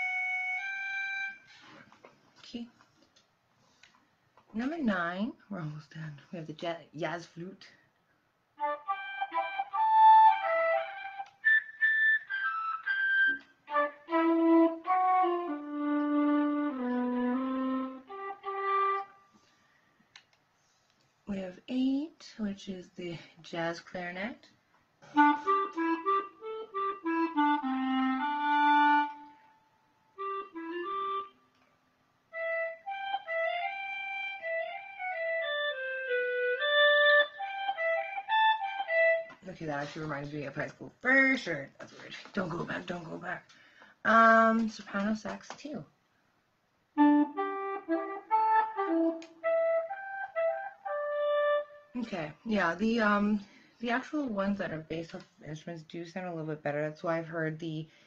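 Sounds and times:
electronic wind instrument flute notes: 0.0 - 1.5, 8.6 - 19.3, 25.1 - 31.4, 32.3 - 39.4, 47.0 - 52.0
synthesized clarinet melody: 0.0 - 1.5, 8.6 - 19.3, 25.1 - 31.5, 32.3 - 39.4, 47.0 - 52.0.

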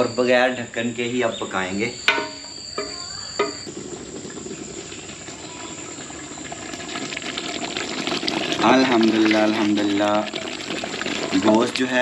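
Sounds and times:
curry sizzling and bubbling in a pot: 1.6 - 12.0
wooden spoon stirring: 2.7 - 11.9.

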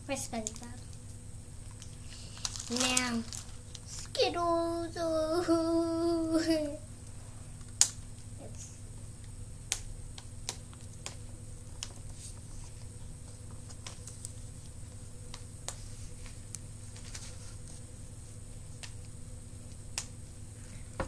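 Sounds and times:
low background hum: 0.0 - 21.0
wrapping clicks and crinkles: 0.3 - 4.2.

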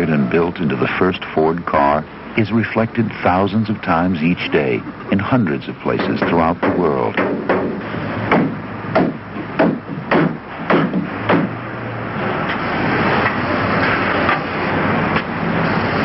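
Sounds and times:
workshop din: 0.0 - 16.0
hammer blows on wood: 6.0 - 11.6.

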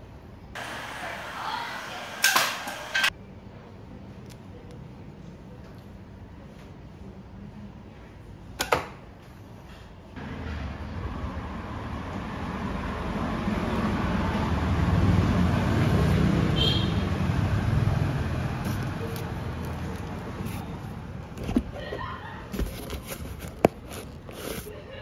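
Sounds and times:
vehicle passing by: 10.2 - 21.2.

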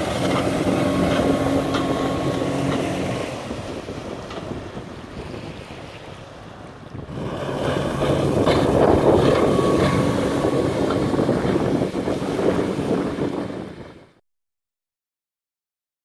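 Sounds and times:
outboard motor running: 0.0 - 5.8, 7.1 - 14.0
wind buffeting microphone: 0.0 - 14.2.

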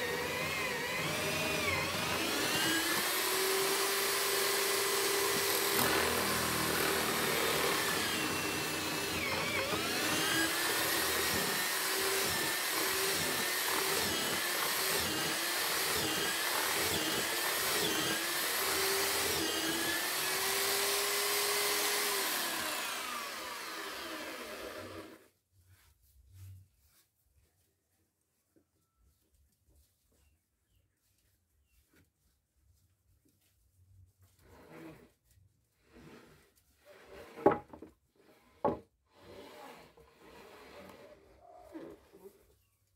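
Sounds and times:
electric drill boring into wood: 0.0 - 25.3, 38.2 - 41.2.

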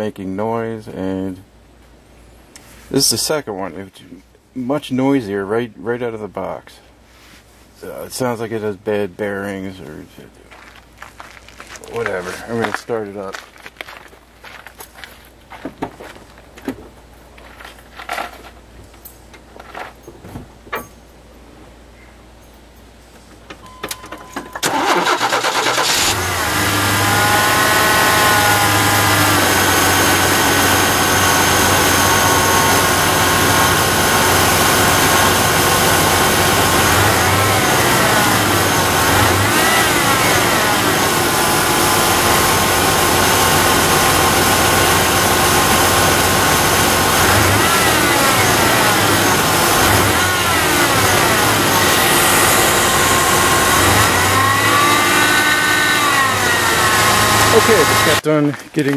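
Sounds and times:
power steering pump whine: 23.5 - 58.2
car engine starting: 24.5 - 58.2.

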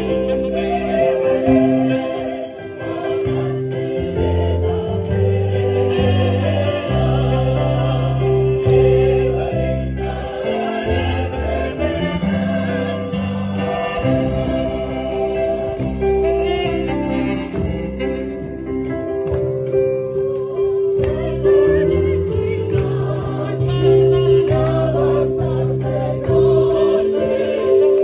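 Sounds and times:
choir singing a hymn: 0.0 - 18.0, 19.9 - 28.0
sustained bass line: 0.0 - 19.4.

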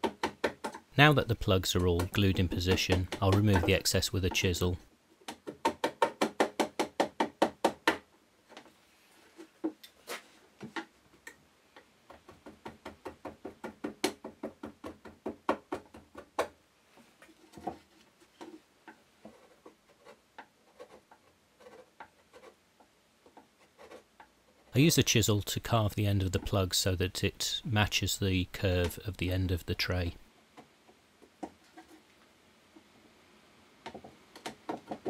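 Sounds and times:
hand tapping chisel handle: 1.7 - 4.6
chisel paring cuts: 1.8 - 4.5.

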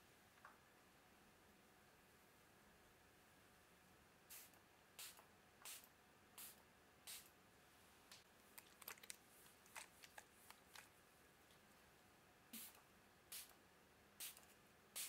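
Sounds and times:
small crackles and rustles: 8.2 - 11.7
spray bottle spritzing: 12.6 - 13.5.

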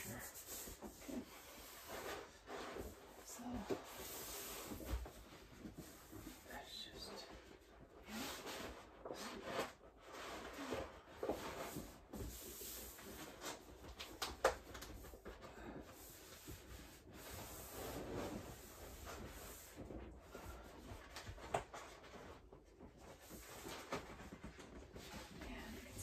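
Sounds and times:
faint rubbing and rustling: 0.0 - 26.0.

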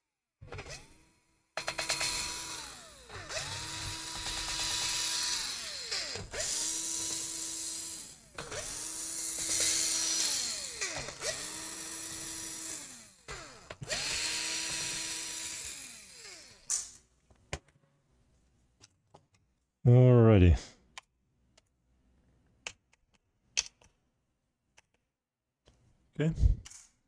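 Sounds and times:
cordless drill motor whine: 1.6 - 16.7.

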